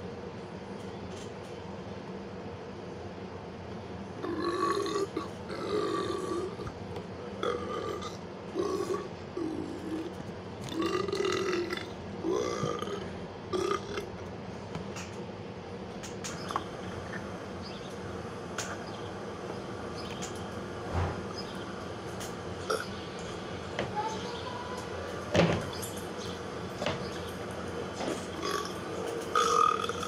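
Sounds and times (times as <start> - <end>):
person burping: 7.4 - 10.1, 10.7 - 14.1, 28.4 - 30.0.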